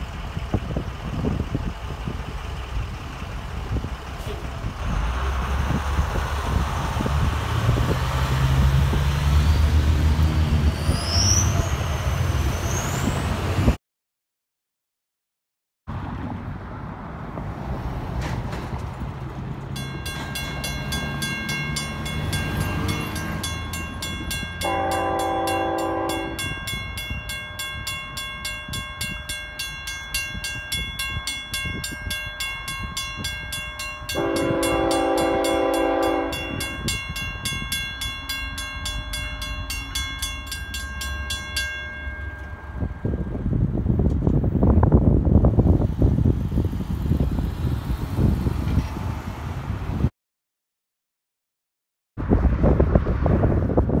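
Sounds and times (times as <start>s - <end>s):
low train rumble: 0.0s - 13.8s, 15.9s - 50.1s, 52.2s - 54.0s
railroad crossing bell ringing: 19.7s - 44.6s
train horn blasts: 24.6s - 26.7s, 34.1s - 36.9s.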